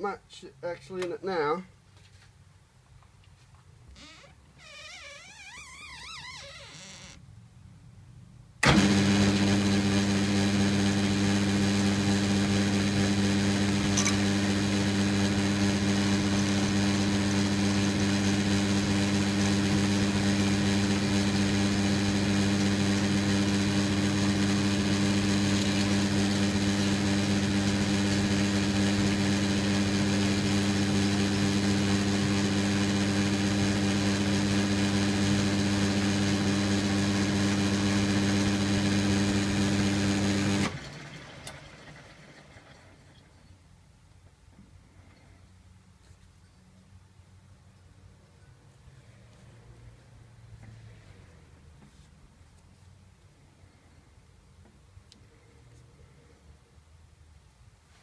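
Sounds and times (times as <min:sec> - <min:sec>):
metal lathe humming: 0:11.0 - 0:40.8.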